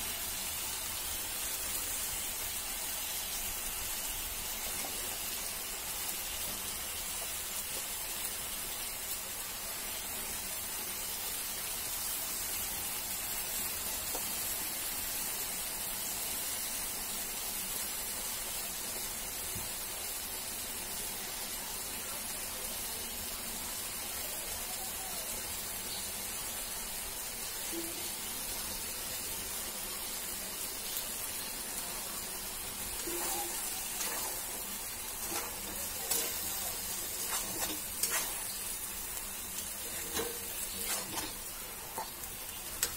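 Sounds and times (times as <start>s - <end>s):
vegetables sizzling in a pan: 0.0s - 42.9s
metal spatula scraping pan: 33.0s - 38.6s, 39.9s - 42.2s.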